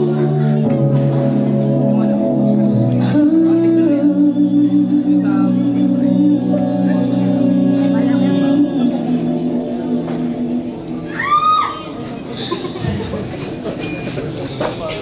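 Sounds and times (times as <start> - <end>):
woman singing: 0.0 - 1.0, 2.9 - 11.1
sustained keyboard chords: 0.0 - 11.1.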